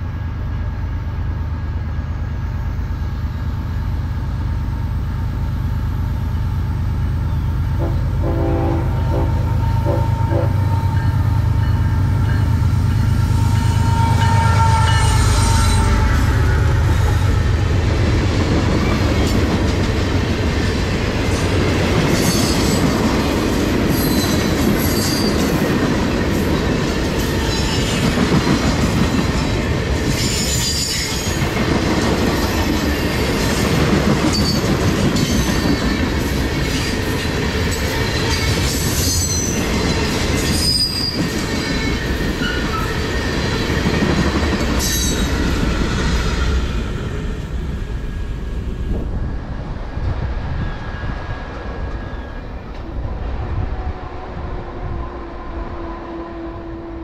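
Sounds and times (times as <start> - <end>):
steel wheels rolling on rail: 2.0 - 57.0
high-pitched wheel squeals: 9.0 - 16.6, 40.4 - 43.0.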